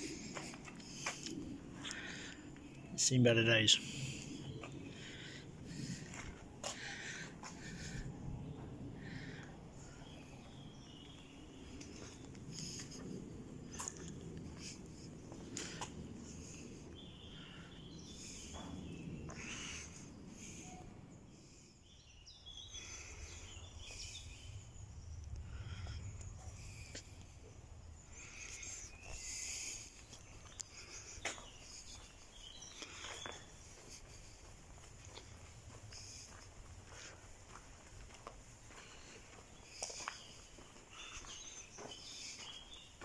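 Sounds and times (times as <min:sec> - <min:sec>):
birds chirping: 0:00.0 - 0:43.0
low rumble: 0:22.8 - 0:32.0.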